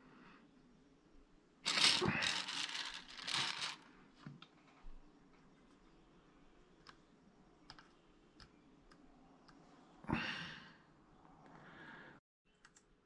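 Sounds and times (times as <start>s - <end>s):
hands handling clay clicks: 1.7s - 3.8s.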